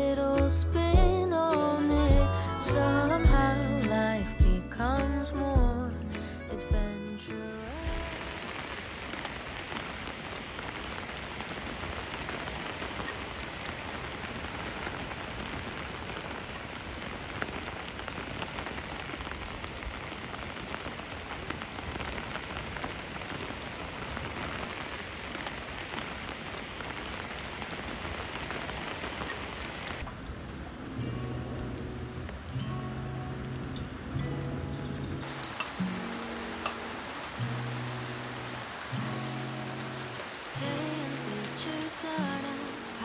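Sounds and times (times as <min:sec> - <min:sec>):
raindrops ticking: 0:00.0 - 0:43.0
steady rain: 0:00.0 - 0:43.0.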